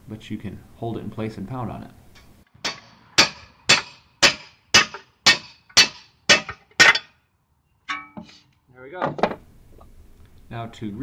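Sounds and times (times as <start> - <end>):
hammer striking steel pipe: 2.6 - 7.2, 7.9 - 8.4.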